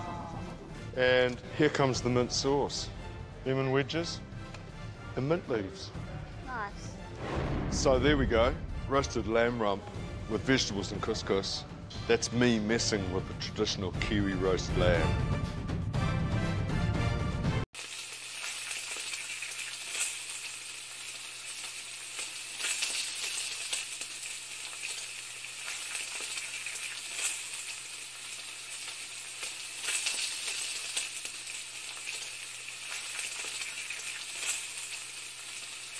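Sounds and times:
crackling sizzling hiss with pops: 17.8s - 35.9s.

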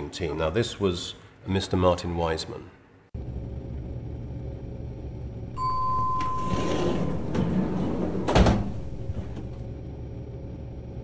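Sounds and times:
low steady hum: 2.9s - 11.0s
lift button beep: 5.6s - 9.7s
heavy lift clunk: 5.6s - 9.8s.

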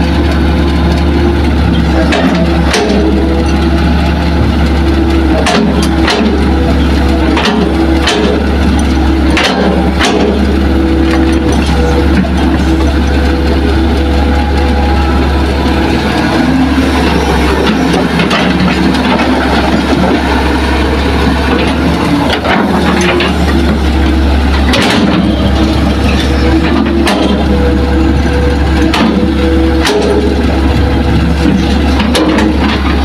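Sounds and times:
excavator diesel engine running: 0.0s - 33.0s.

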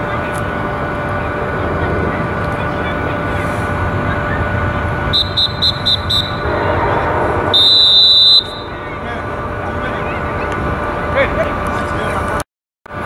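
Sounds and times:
long loud beep: 5.1s - 6.6s, 7.5s - 8.8s.

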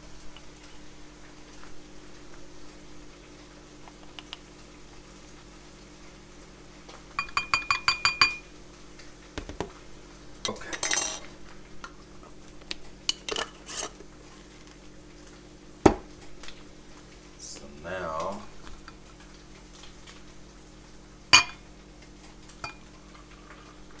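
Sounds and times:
spoon tapping against glass: 7.2s - 8.4s
spoon scraping ground coffee: 13.2s - 14.0s.

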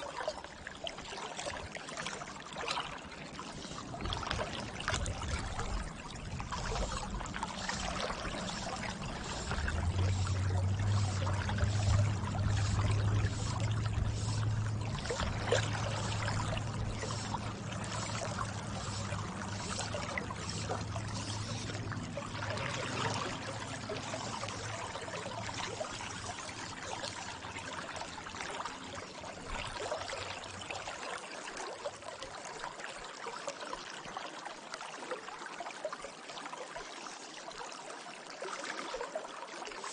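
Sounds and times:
river water flowing: 0.0s - 39.9s
low rumble: 4.1s - 23.8s.

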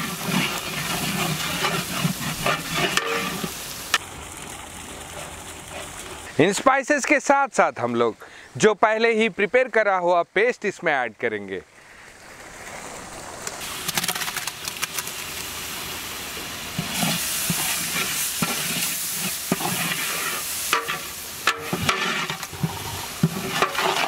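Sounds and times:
metal ladle scraping a pot: 0.0s - 3.6s, 16.8s - 24.0s
paste sizzling in hot oil: 0.0s - 6.3s, 13.6s - 24.0s.

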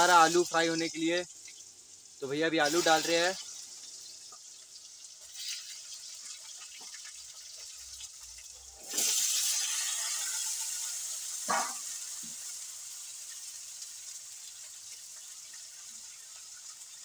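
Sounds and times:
frying hiss: 0.0s - 17.0s
potatoes sizzling in hot oil: 0.0s - 17.0s
metal clatter against pan: 11.5s - 11.9s.

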